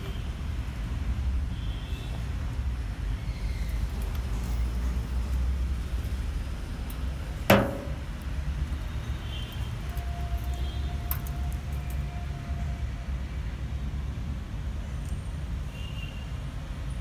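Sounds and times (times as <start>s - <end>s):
sharp loud knock: 7.5s - 8.1s.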